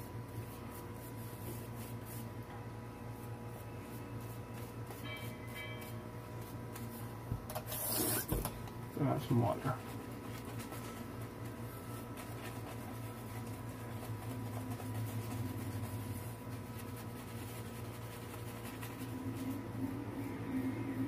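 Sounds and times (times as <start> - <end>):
constant low hum: 8.4 - 21.0
shaving brush rubbing lather: 9.0 - 21.0.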